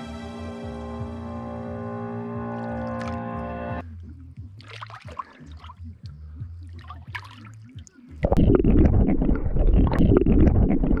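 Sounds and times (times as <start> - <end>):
muffled underwater rumble: 3.8 - 11.0
water splashing and trickling: 4.5 - 11.0.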